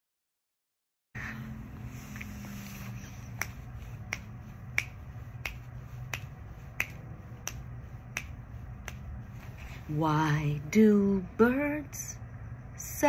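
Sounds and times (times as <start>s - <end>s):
low steady hum: 1.2s - 13.0s
fingers snapping: 3.3s - 9.2s.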